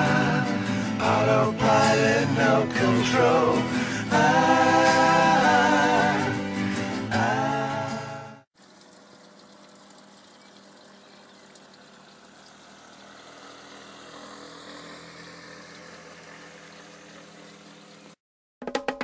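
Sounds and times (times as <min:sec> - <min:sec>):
motorcycle running: 0:10.2 - 0:18.2
wind and road noise: 0:12.1 - 0:18.2.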